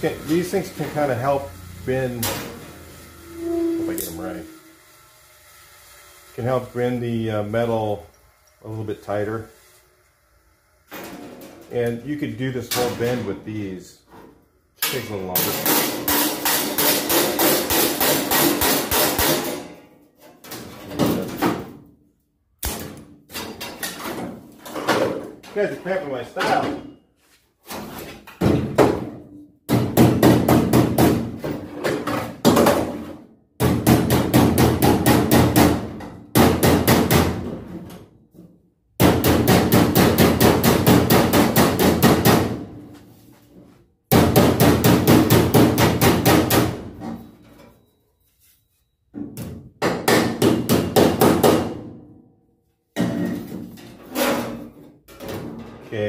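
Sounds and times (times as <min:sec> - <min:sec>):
steel sheet ringing: 0:00.5 - 0:05.0
hammer striking sheet steel: 0:14.8 - 0:19.8, 0:39.0 - 0:42.8, 0:44.1 - 0:46.9.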